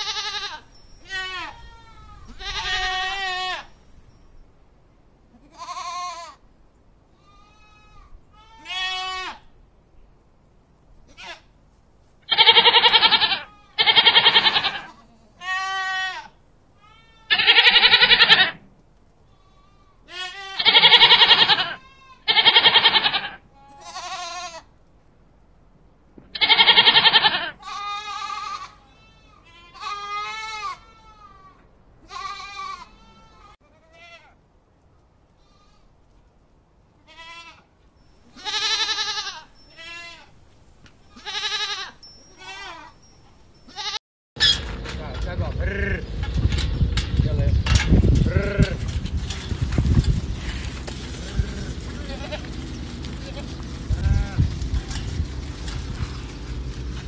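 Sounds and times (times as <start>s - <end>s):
goats bleating: 0.0s - 3.7s, 5.4s - 6.4s, 7.2s - 9.4s, 12.3s - 18.6s, 19.3s - 24.7s, 26.4s - 34.3s, 37.1s - 37.7s, 38.3s - 40.3s, 41.1s - 42.9s, 45.5s - 46.1s, 48.2s - 49.0s, 50.3s - 57.0s.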